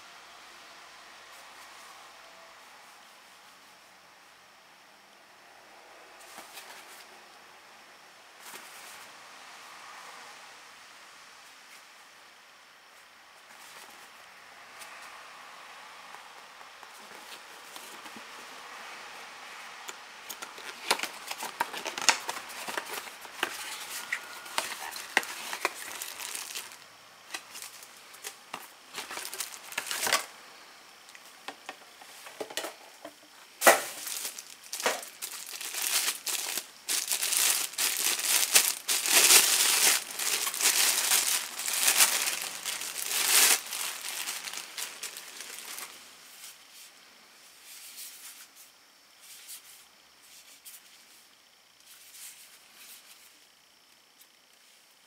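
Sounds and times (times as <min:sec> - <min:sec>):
plastic wrapping crinkling: 0:20.2 - 0:30.3, 0:33.6 - 0:46.0.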